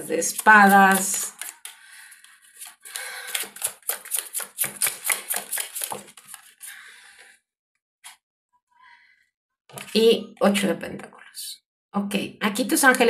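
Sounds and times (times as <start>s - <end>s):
cards being shuffled: 0.3s - 6.7s.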